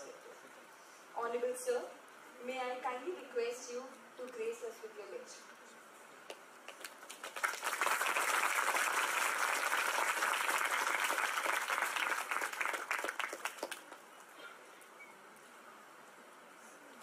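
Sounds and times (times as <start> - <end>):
audience applauding: 6.7 - 14.1.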